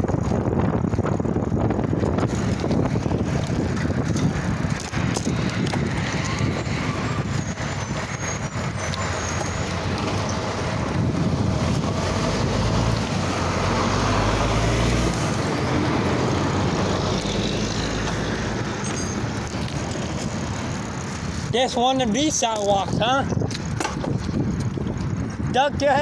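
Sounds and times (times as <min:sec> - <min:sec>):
road traffic noise: 0:00.0 - 0:26.0.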